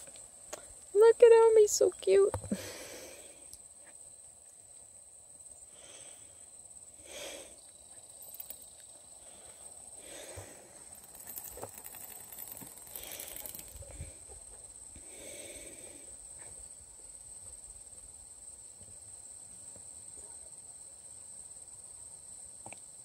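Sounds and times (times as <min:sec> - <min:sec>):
crickets chirring: 0:00.0 - 0:23.0
dog chain rattling on dirt: 0:08.1 - 0:08.8, 0:10.2 - 0:14.2.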